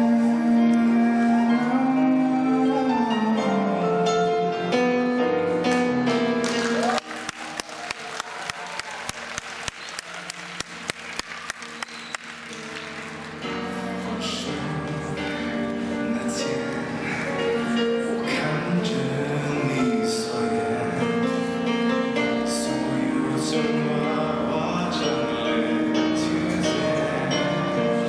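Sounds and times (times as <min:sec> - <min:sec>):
digital piano: 0:00.0 - 0:08.1, 0:09.1 - 0:28.0
audience clapping in time: 0:06.4 - 0:13.6
man singing a pop ballad: 0:18.1 - 0:28.0.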